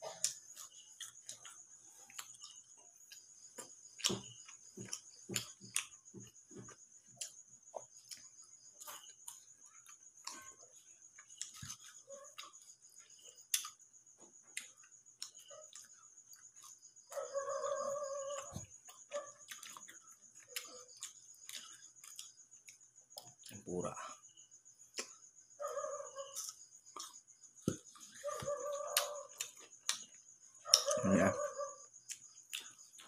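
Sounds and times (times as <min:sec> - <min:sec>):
person chewing fries: 0:00.0 - 0:13.9, 0:18.3 - 0:23.6
crickets chirping: 0:00.0 - 0:33.0.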